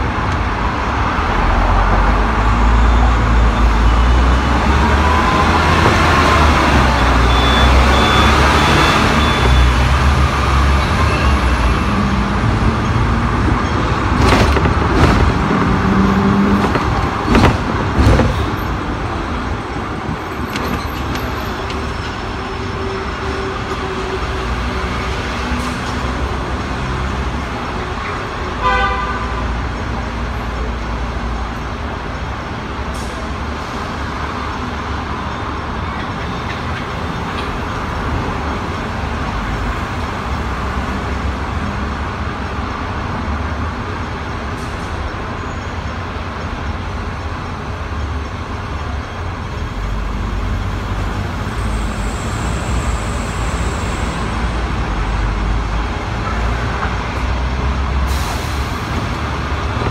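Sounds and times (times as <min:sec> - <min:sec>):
road traffic noise: 0:00.0 - 0:59.9
vehicle horn toot: 0:28.6 - 0:29.4.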